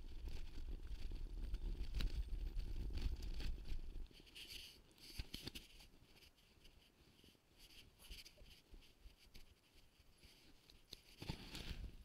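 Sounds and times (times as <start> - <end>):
wind rumble on microphone: 0.0 - 4.1.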